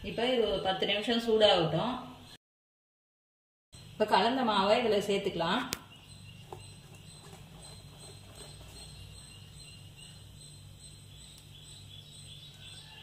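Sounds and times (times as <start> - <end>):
steady low hum: 3.8 - 12.8.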